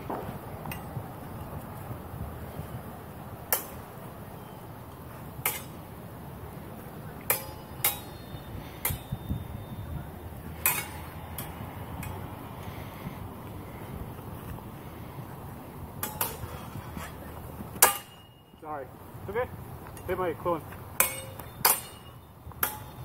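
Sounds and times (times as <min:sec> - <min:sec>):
swords clashing: 0:05.4 - 0:05.8, 0:07.2 - 0:09.1, 0:10.6 - 0:12.2, 0:16.0 - 0:16.5, 0:17.8 - 0:18.4, 0:21.0 - 0:23.0.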